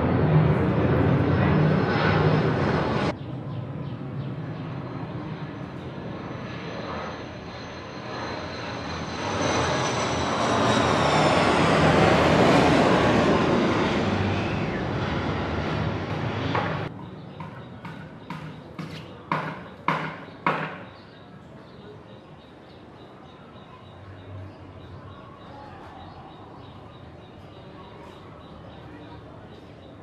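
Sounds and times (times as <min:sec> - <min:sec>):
jet engine roar: 0:00.0 - 0:16.9
high turbine whine: 0:00.0 - 0:17.0.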